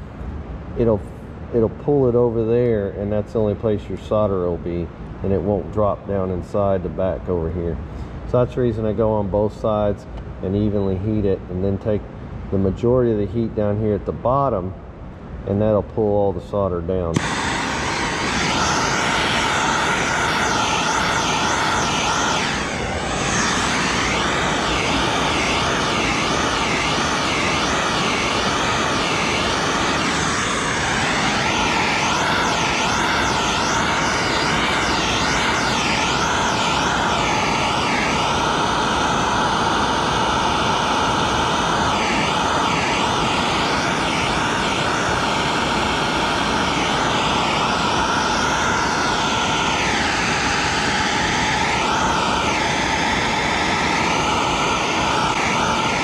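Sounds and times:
torch flame roaring hiss: 0:17.1 - 0:56.0.

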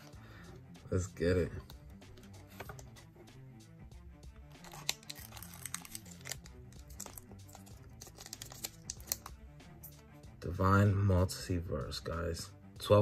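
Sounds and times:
quiet background music: 0:00.0 - 0:13.0
foil wrappers crinkling: 0:04.6 - 0:09.3.

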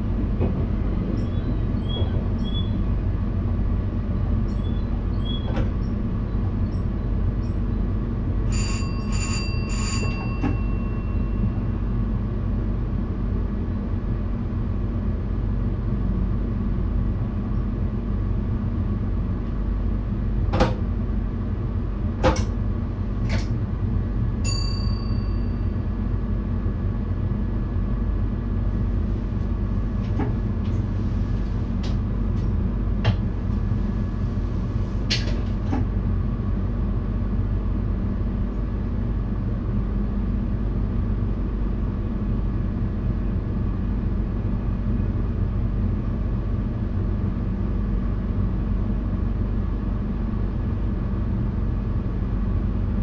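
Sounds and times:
electric train low rumble: 0:00.0 - 0:53.0
chime: 0:24.5 - 0:25.7.

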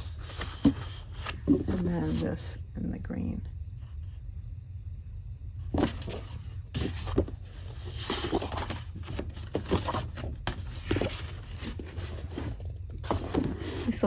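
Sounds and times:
paper sheets rustling: 0:05.8 - 0:14.0.

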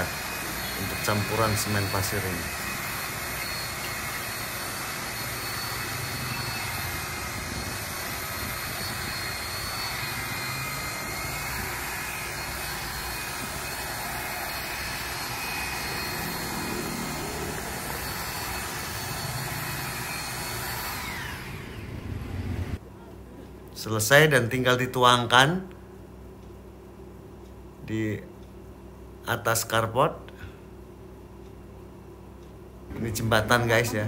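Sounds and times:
paddle mixer motor whining: 0:00.0 - 0:22.8.

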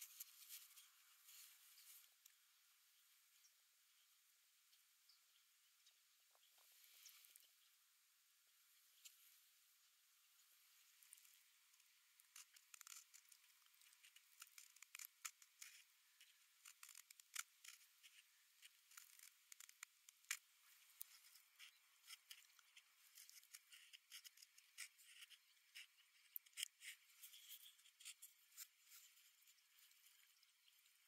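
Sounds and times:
carving tool scraping wood: 0:12.2 - 0:29.8.

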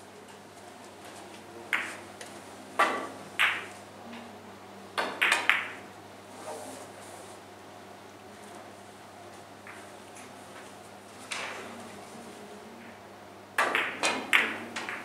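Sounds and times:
billiard balls clacking: 0:01.7 - 0:03.8, 0:05.0 - 0:05.8, 0:13.6 - 0:15.0.

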